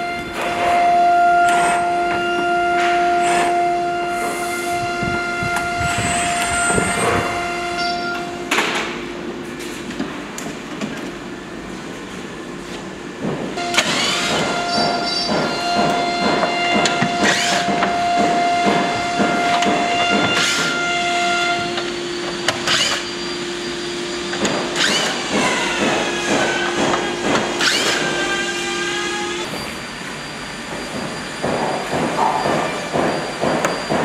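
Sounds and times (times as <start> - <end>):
held synth note: 0.0 - 9.4.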